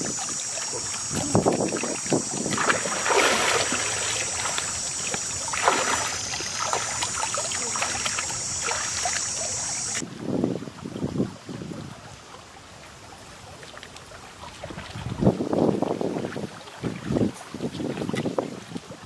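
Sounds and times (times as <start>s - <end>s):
high-pitched buzz: 0.0s - 10.0s
water sloshing from wading: 0.0s - 10.0s.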